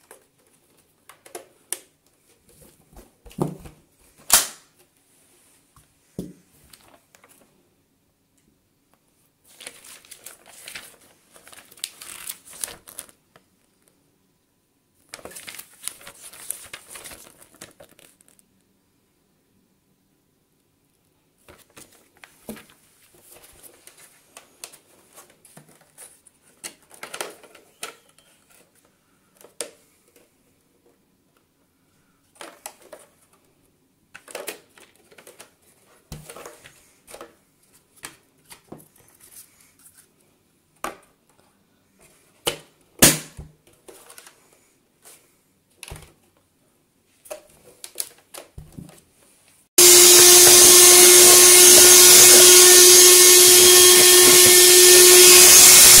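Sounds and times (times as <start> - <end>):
paper rustling: 9.4 - 13.9, 15.0 - 18.4, 21.4 - 28.9
vacuum cleaner motor whining: 49.8 - 56.0.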